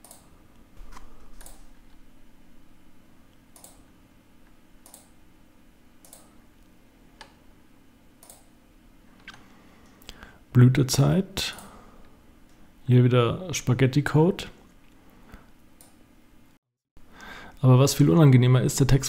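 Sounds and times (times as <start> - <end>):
faint low hum: 0.0 - 19.0
computer mouse clicking: 3.6 - 3.8, 4.8 - 5.1, 6.0 - 6.3, 8.2 - 8.5.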